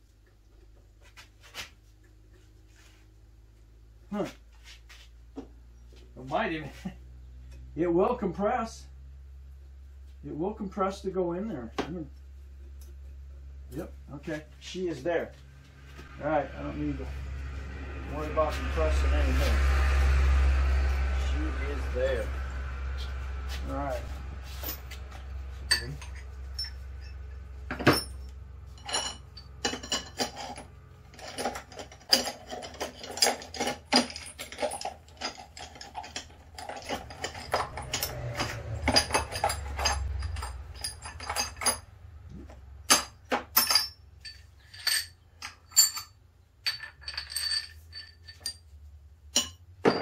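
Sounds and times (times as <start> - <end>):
low steady hum: 0.0 - 50.0
metal tools clinking: 24.0 - 42.0, 42.8 - 50.0.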